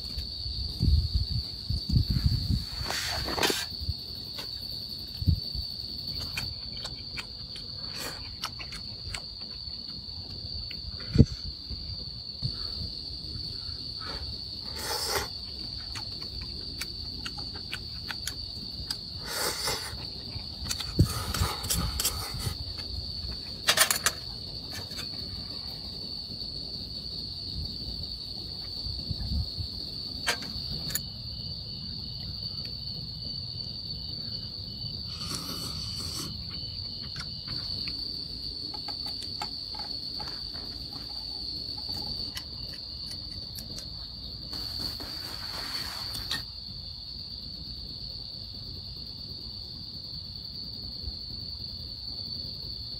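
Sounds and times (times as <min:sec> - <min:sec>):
crickets chirping: 0:00.0 - 0:52.9
brief hissy rushes: 0:44.5 - 0:46.4.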